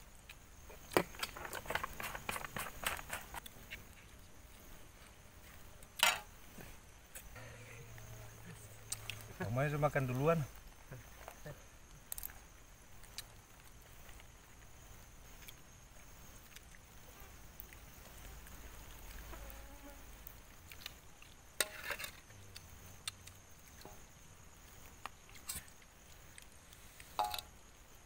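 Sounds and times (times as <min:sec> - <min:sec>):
spoons clicking against bowls: 0:27.2 - 0:27.5.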